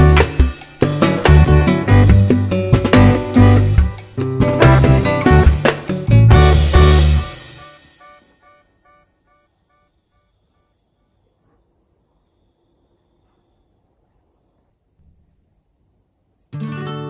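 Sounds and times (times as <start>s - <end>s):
background music: 0.0s - 9.0s.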